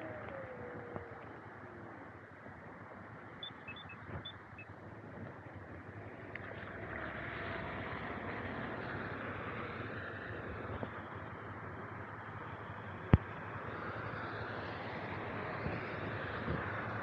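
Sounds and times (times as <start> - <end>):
rain: 4.5 - 17.0.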